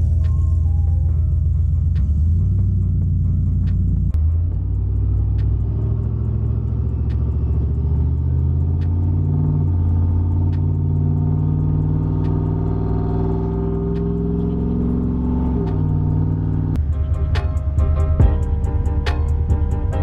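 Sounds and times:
engine drone inside cab: 0.0s - 20.0s.

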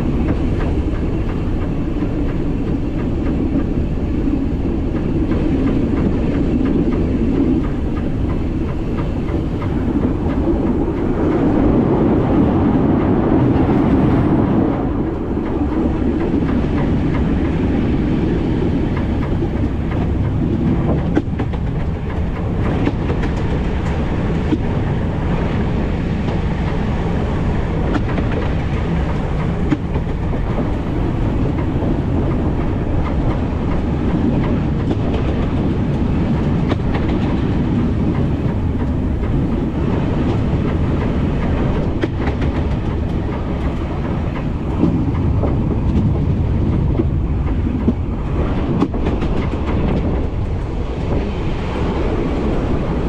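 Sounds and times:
train wheels rumbling on rail: 0.0s - 53.0s
wheels clicking over rail joints: 0.0s - 53.0s.

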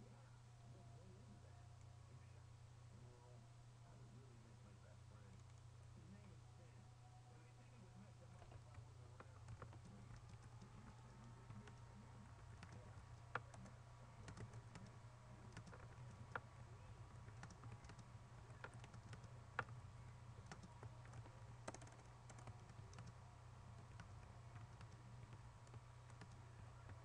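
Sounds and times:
low steady hum: 0.0s - 27.0s
typing on keyboard: 8.4s - 19.8s, 20.4s - 27.0s.

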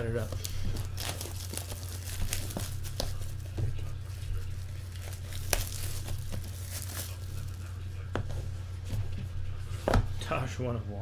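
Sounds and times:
plastic wrap crinkling and tearing: 0.0s - 7.6s.

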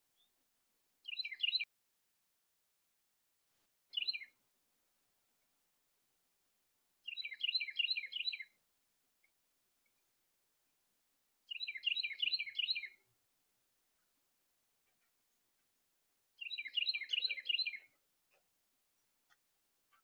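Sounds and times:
songbird singing: 1.0s - 1.7s, 3.9s - 4.4s, 6.9s - 20.0s.

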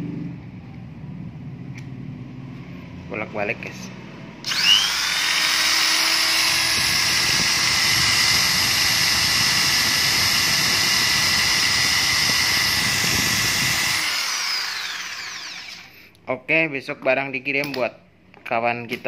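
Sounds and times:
electric drill whining: 4.4s - 16.0s.

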